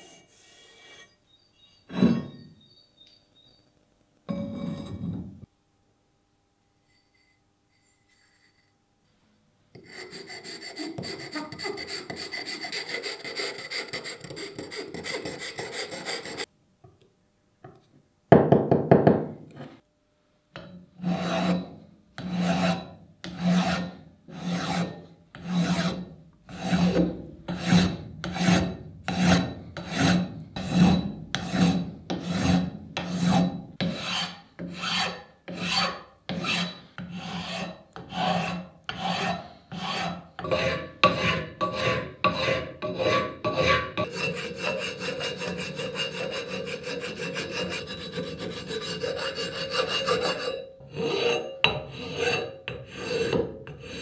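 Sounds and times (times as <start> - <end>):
metal file rasping on metal: 0.0 - 1.2, 9.7 - 16.5, 21.0 - 54.0.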